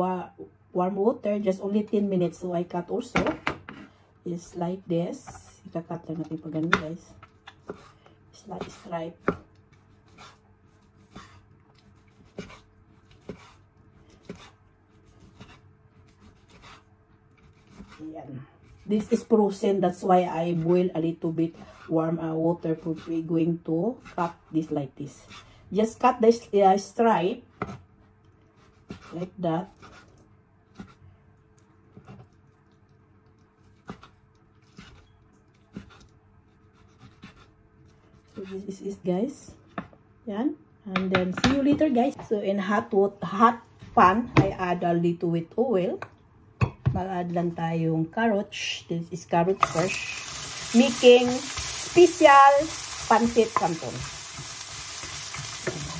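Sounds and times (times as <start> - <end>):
knife slicing chicken: 9.8 - 18.0, 33.6 - 37.5.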